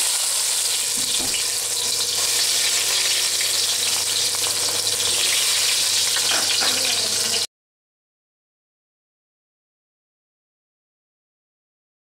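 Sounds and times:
paste sizzling in hot oil: 0.0 - 7.5.

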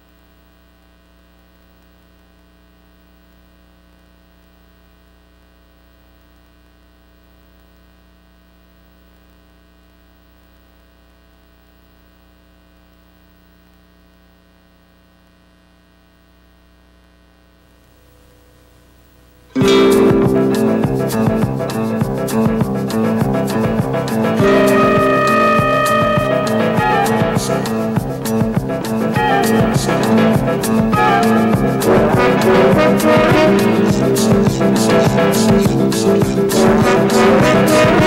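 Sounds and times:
faint mains hum: 0.0 - 26.2.

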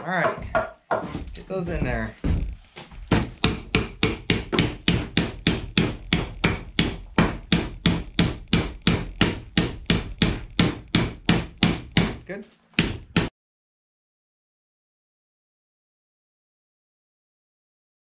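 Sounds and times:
hammer driving nails into wood: 2.8 - 12.2, 12.8 - 13.3.

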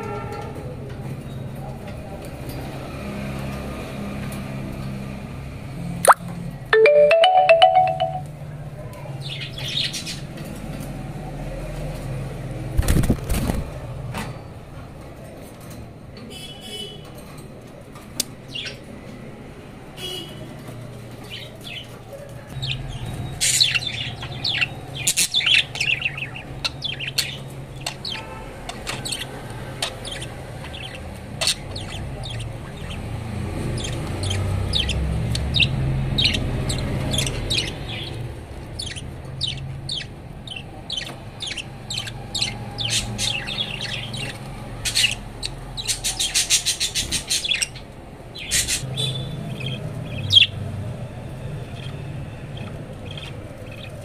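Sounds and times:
budgerigars chirping: 22.6 - 47.8, 48.4 - 50.6, 51.7 - 54.0.

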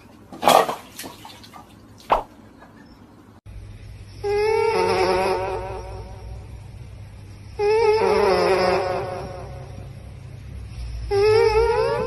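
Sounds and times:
water dripping: 0.0 - 2.7
water splashing in a bowl: 0.2 - 2.4
steady humming tone: 2.4 - 12.0.

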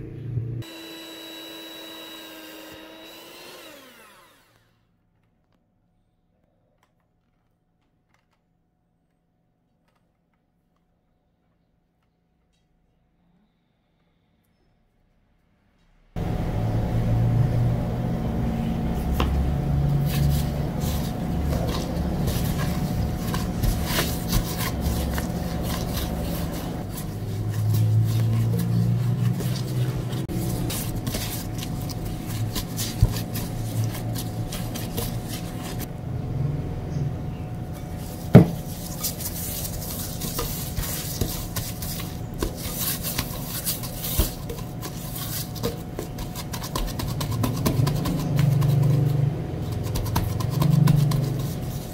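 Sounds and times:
hands pressing dough: 18.8 - 35.9, 37.8 - 51.9
spatula scraping glass bowl: 19.0 - 35.9, 37.7 - 51.9.

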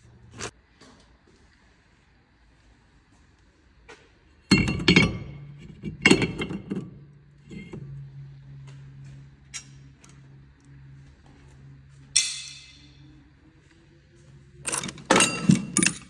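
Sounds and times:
low hum: 4.4 - 16.0
metal brake disc clanking: 4.5 - 8.0, 14.7 - 16.0.

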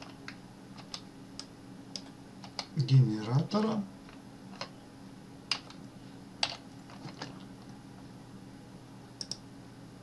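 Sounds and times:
low electrical hum: 0.0 - 10.0
mouse and keyboard clicks: 9.2 - 9.4.

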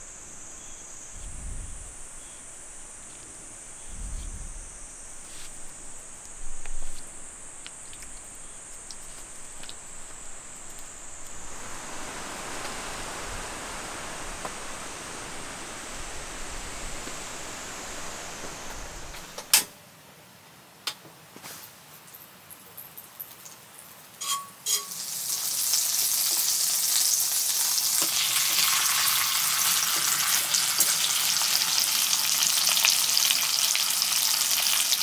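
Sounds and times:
even rushing noise: 0.0 - 19.5
high-pitched insect drone: 0.0 - 19.6.

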